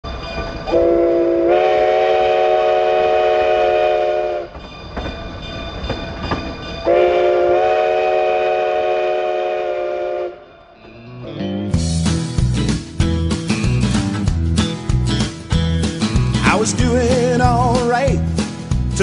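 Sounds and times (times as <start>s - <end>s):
running train: 0.0s - 19.0s
steam locomotive chime whistle: 0.1s - 4.8s, 6.8s - 10.8s.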